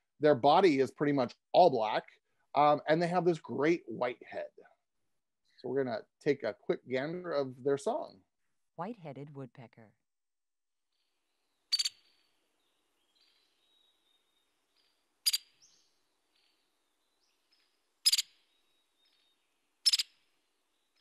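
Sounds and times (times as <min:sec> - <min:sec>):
woodpecker calls: 0:11.7 - 0:16.6, 0:17.3 - 0:21.0.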